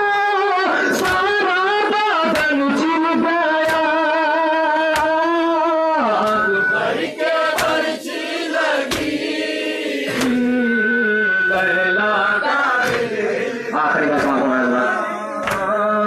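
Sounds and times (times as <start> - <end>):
male voices chanting a lament: 0.0 - 16.0
rhythmic chest-beating slaps: 0.7 - 10.6, 11.5 - 16.0.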